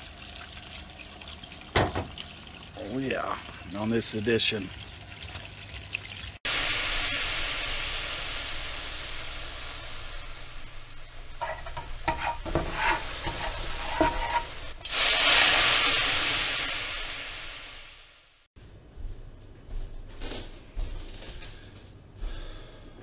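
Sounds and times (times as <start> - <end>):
food sizzling in hot oil: 4.8 - 18.4.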